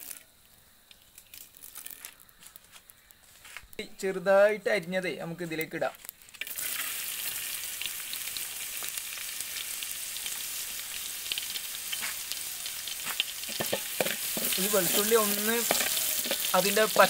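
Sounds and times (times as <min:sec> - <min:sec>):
garlic sizzling in oil: 0:05.4 - 0:17.0.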